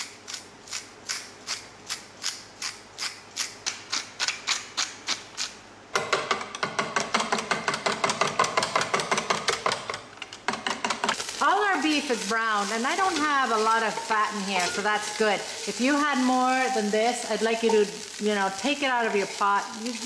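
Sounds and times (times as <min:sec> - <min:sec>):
pepper mill grinding: 0:11.1 - 0:20.0.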